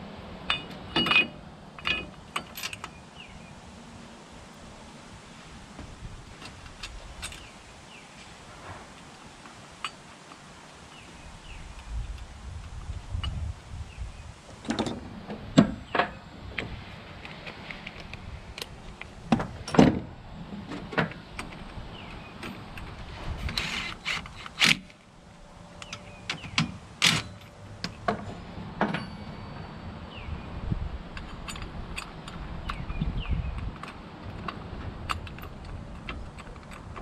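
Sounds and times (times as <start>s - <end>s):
metallic tool clanks and knocks: 0.5s - 3.0s, 25.8s - 29.6s.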